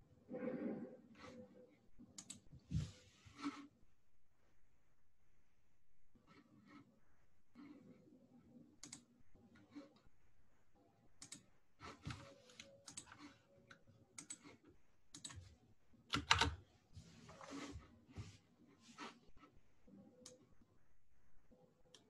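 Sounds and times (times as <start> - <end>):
typing on computer keyboard: 11.2 - 13.3, 14.1 - 15.5, 16.1 - 16.6.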